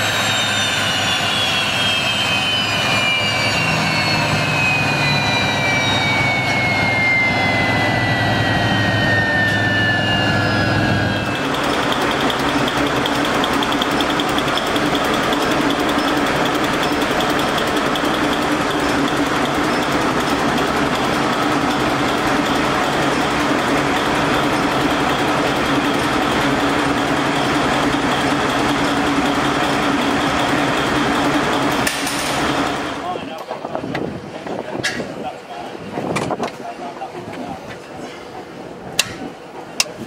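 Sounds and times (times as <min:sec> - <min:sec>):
diesel engine running: 0:00.0 - 0:40.0.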